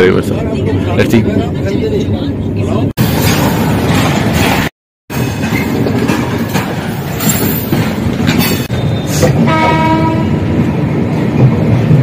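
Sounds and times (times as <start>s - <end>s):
train wheels rumbling and clattering: 0.1s - 12.0s
train horn: 9.4s - 10.4s.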